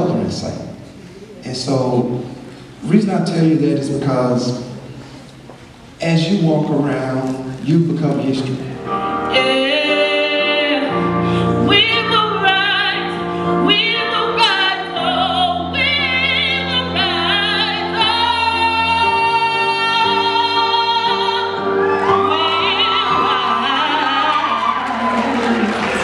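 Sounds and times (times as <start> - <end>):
held backing chords: 0.0 - 26.0
woman singing into a microphone: 9.1 - 25.3.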